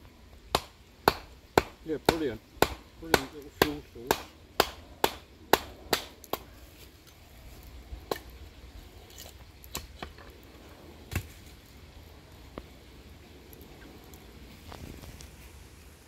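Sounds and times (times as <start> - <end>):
hatchet chopping wood: 0.5 - 6.5.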